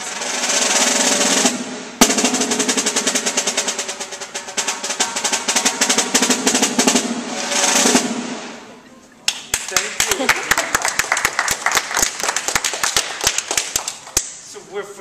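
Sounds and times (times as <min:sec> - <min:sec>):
snare drum played with sticks: 0:00.0 - 0:08.6.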